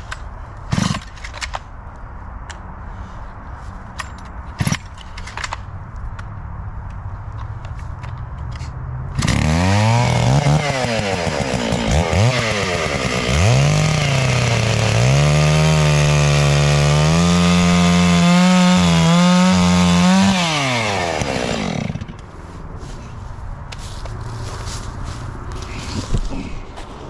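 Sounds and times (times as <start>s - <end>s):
electric chainsaw cutting log: 9.2s - 22.2s.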